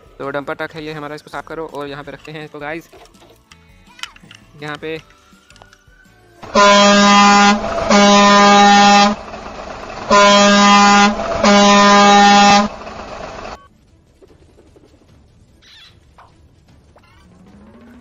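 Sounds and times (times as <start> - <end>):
truck air horn blasts: 6.4 - 13.6.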